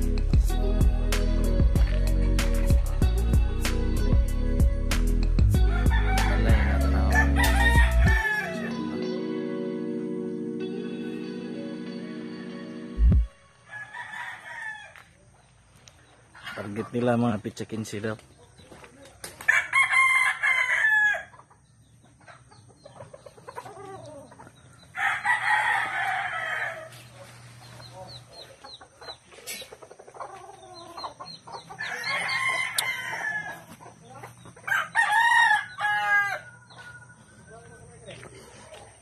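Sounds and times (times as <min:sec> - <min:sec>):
roosters crowing: 0:05.4 - 0:10.0, 0:12.2 - 0:15.3, 0:19.4 - 0:21.6, 0:22.2 - 0:39.0.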